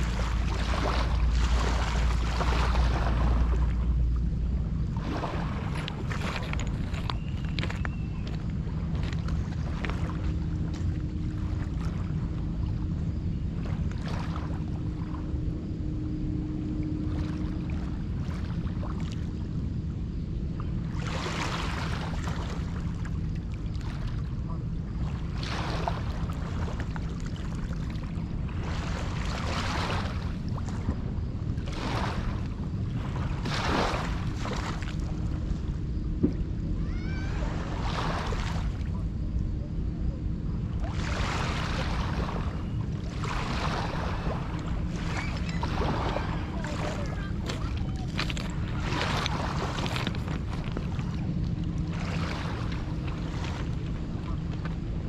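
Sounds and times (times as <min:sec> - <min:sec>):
faint steady hum: 0:00.0 - 0:55.0
wind rumble on microphone: 0:00.0 - 0:55.0
waves washing onto rocky shore: 0:44.9 - 0:51.2.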